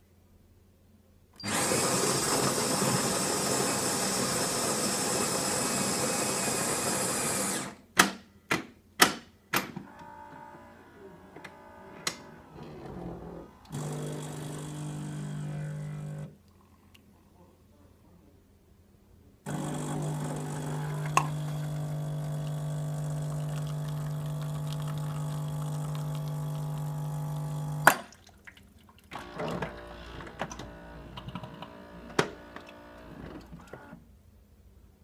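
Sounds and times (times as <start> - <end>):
espresso machine pump humming: 13.7 - 16.3, 19.5 - 27.9.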